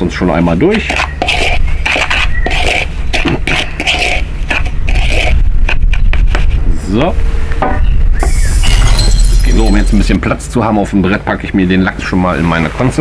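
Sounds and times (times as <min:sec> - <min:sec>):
spoon scraping in plastic bowl: 0:00.6 - 0:06.6.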